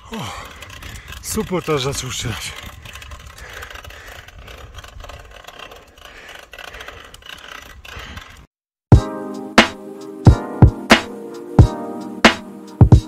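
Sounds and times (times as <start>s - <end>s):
wind buffeting microphone: 0.0s - 8.4s
bike tyres on asphalt: 0.0s - 8.5s.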